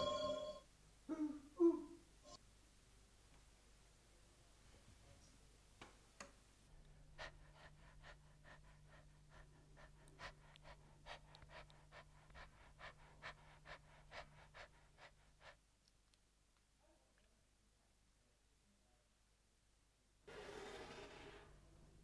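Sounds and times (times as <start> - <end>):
man panting like a dog: 6.8 - 15.6.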